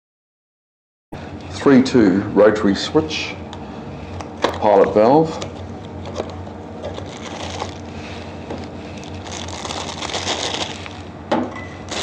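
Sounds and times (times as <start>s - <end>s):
plastic bag crinkling: 6.0s - 11.2s, 11.8s - 12.0s.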